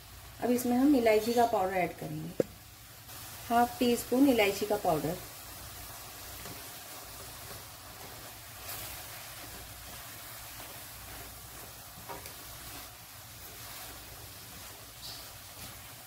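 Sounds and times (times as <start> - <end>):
mixture sizzling faintly in a pan: 0.0 - 16.0
spatula scraping a pan: 6.4 - 16.0.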